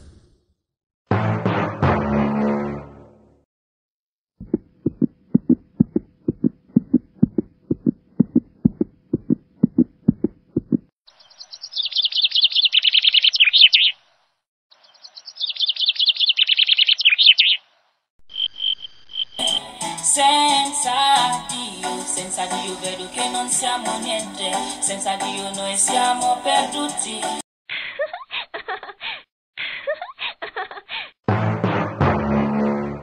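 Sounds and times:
bird chirping trills: 11.1 - 14.0, 14.7 - 17.6, 18.3 - 19.6.

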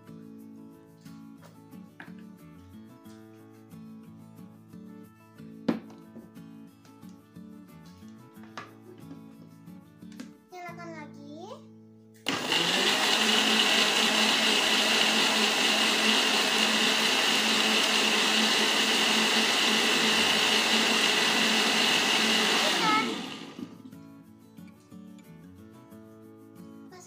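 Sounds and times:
blender motor winding down: 12.3 - 23.8
electric blender running: 12.3 - 23.8.

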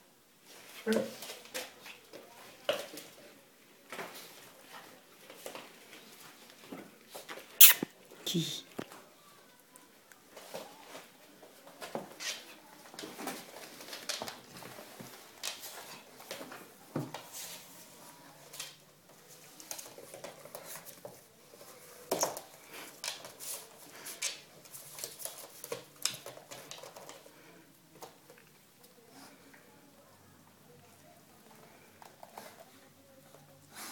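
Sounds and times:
dog claws clicking on hard floor: 24.2 - 27.3.

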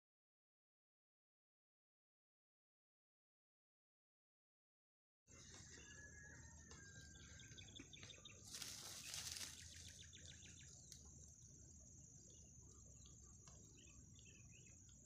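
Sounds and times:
birds chirping in trills: 5.3 - 15.0.

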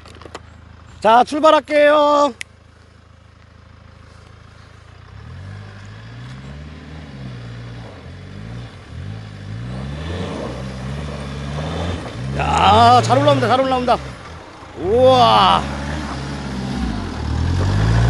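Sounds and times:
suv engine revving: 4.1 - 18.0.

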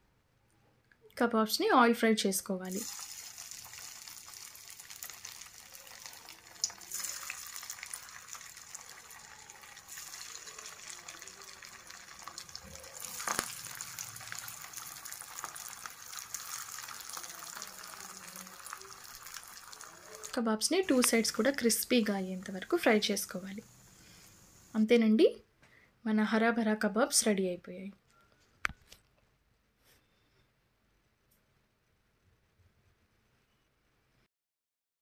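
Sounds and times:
patties deep-frying in hot oil: 2.7 - 24.8.

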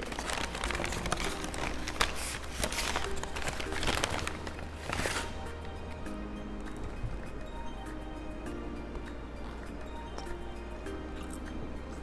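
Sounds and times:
paper bag rustling and crinkling: 0.0 - 5.5.

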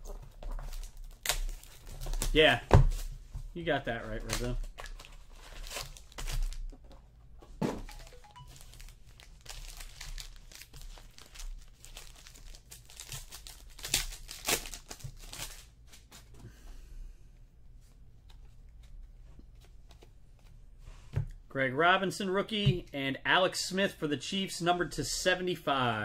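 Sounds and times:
cards and plastic packaging rustling: 0.0 - 7.1, 7.8 - 16.4.

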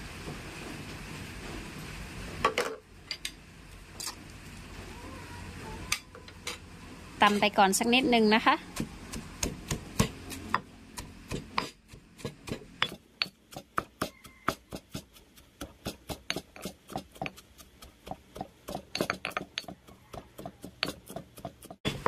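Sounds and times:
stone pestle pounding in mortar: 8.6 - 22.0.

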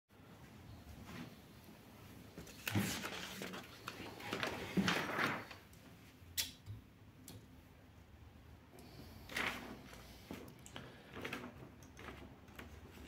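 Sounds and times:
paper rustling and scraping: 2.4 - 5.6, 9.2 - 13.0.

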